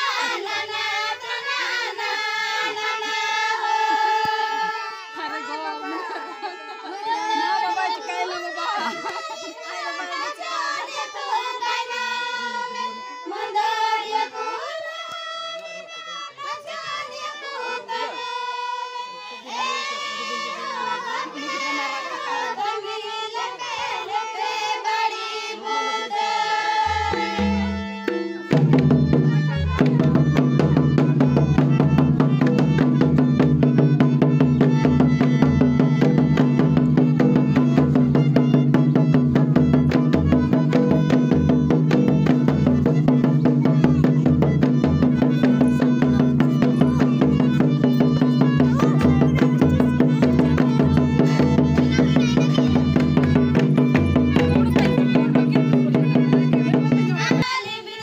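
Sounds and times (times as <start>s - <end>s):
folk dance music: 0.0s - 58.0s
drums playing fast beat: 26.9s - 57.5s
person singing: 40.7s - 58.0s.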